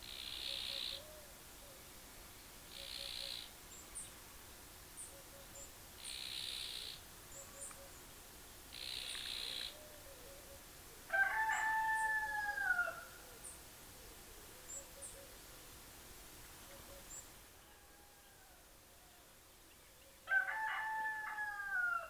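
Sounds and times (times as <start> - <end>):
faint high bird chirps: 0.0 - 1.8, 2.7 - 4.1, 5.0 - 8.0, 14.6 - 15.4, 16.6 - 18.4
rooster crowing: 11.1 - 13.2, 17.4 - 18.7, 20.3 - 22.0.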